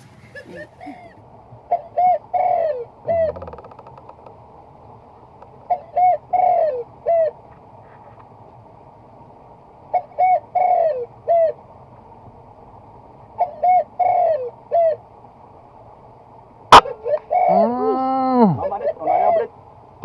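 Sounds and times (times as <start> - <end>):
dove cooing: 0.0 - 4.0, 5.6 - 8.0, 9.9 - 11.6, 13.4 - 15.0, 16.7 - 19.5.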